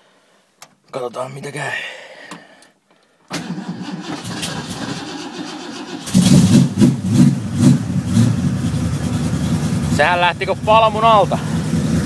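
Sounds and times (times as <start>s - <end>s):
engine starter cranking: 3.3s - 6.8s
car engine running unevenly: 6.2s - 12.0s.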